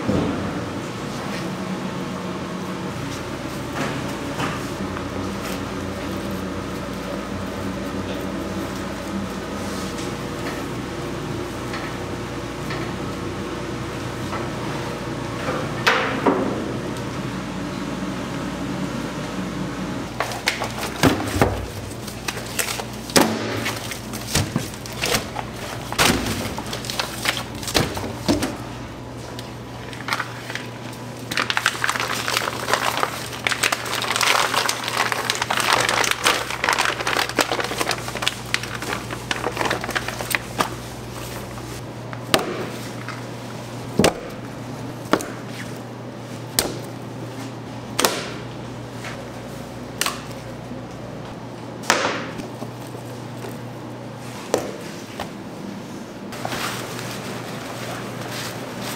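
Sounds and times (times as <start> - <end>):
steady low hum: 0.0 - 58.9
plastic rustling: 20.2 - 41.8, 56.4 - 58.9.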